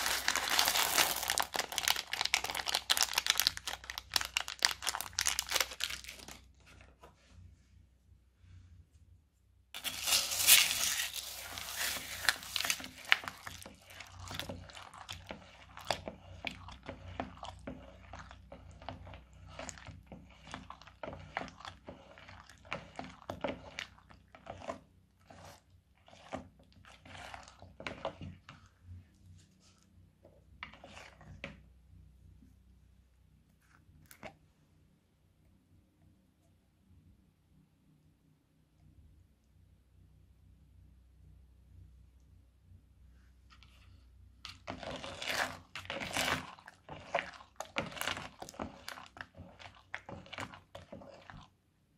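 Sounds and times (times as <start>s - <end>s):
spatula stirring beads in glue: 0.0s - 7.4s, 9.8s - 34.4s, 43.5s - 51.9s.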